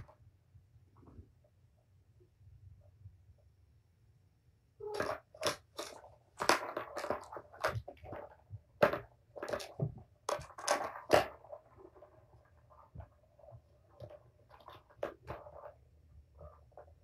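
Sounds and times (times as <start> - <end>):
plastic balls knocking and rattling: 4.8 - 17.0.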